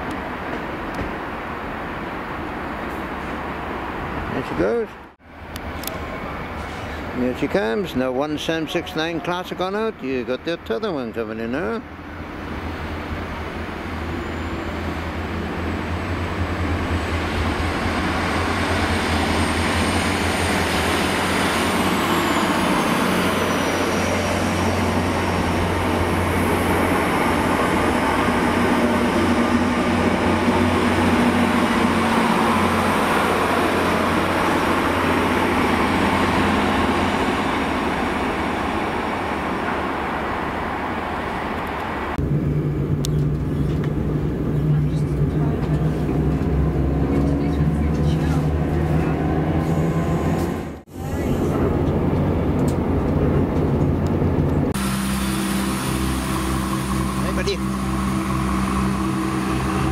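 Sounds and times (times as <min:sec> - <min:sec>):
train passing by: 0:00.0 - 0:59.9
hum inside moving train: 0:05.0 - 0:07.3, 0:11.8 - 0:59.9
high whine sliding down: 0:54.5 - 0:59.9.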